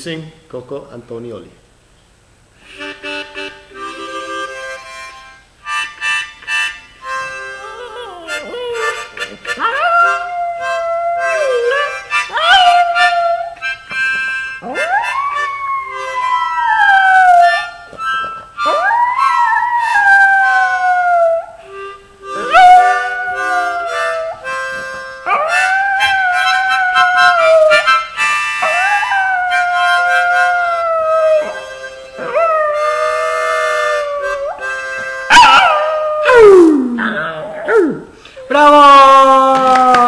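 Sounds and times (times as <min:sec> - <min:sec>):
harmonica playing chords: 0:02.6 - 0:36.2
small dog howling: 0:07.6 - 0:09.0, 0:09.6 - 0:13.6, 0:14.6 - 0:17.8, 0:18.6 - 0:21.6, 0:22.4 - 0:24.5, 0:25.3 - 0:27.9, 0:28.6 - 0:31.6, 0:32.2 - 0:34.7, 0:35.3 - 0:38.1.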